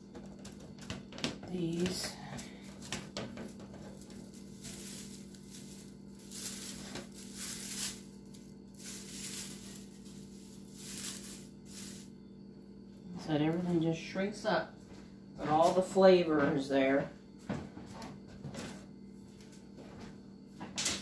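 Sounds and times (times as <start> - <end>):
low hum: 0.0 - 17.4
plastic sheet crinkling: 3.8 - 12.0.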